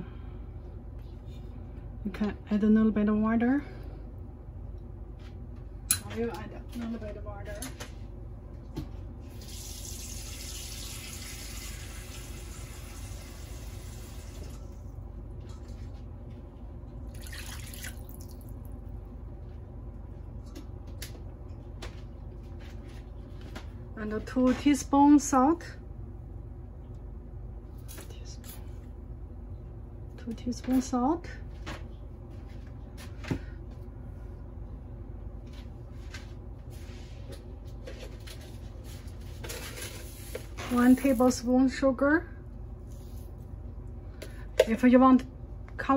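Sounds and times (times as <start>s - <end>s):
steady low hum: 0.0s - 10.6s, 11.3s - 45.9s
water splashing into broth: 17.2s - 18.5s.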